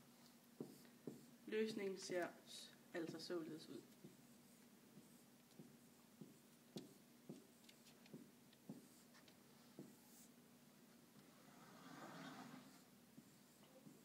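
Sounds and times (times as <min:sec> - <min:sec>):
marker writing on whiteboard: 0:00.6 - 0:01.4, 0:03.0 - 0:10.4, 0:11.3 - 0:14.0.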